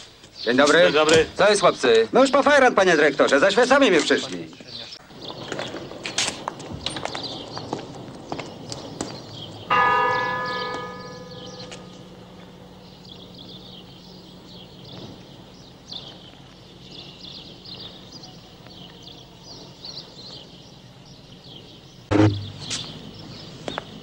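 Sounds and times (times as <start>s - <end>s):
small birds chirping: 0.0s - 24.0s
loud sudden sound: 22.1s - 22.9s.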